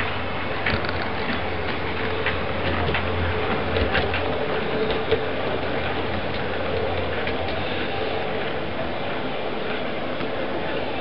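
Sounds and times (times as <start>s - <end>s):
wheels clicking over rail joints: 0.0s - 11.0s.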